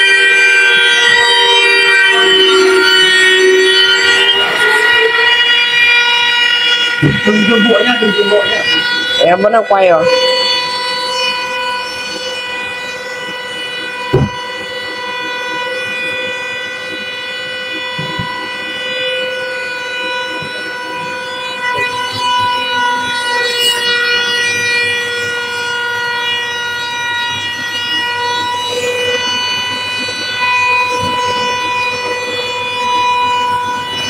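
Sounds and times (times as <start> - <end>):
machine motors whining: 0.0 - 34.0
sharp thump: 14.1 - 14.4.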